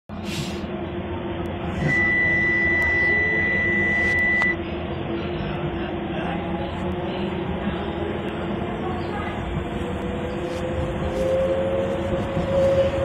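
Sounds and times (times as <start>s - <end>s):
train running hum: 0.1s - 13.0s
long high electronic beep: 1.7s - 4.6s.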